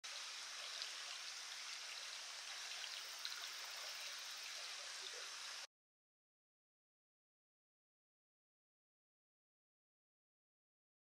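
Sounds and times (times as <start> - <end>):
water running in channel: 0.0 - 5.7.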